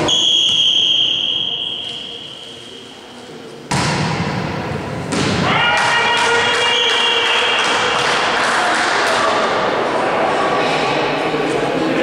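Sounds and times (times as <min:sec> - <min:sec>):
referee's whistle: 0:00.0 - 0:02.8
volleyball serve slap: 0:03.7 - 0:05.9.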